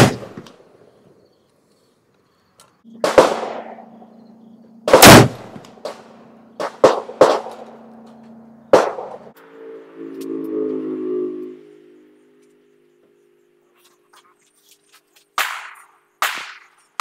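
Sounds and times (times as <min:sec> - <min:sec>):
rifle gunshots: 0:00.0 - 0:00.4, 0:03.0 - 0:04.0, 0:04.9 - 0:07.8, 0:08.7 - 0:09.2
steady low hum: 0:02.4 - 0:14.8.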